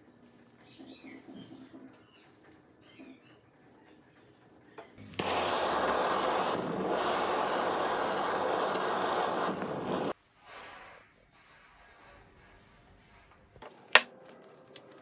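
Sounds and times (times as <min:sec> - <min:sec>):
electric blower motor rushing: 0:05.0 - 0:10.1.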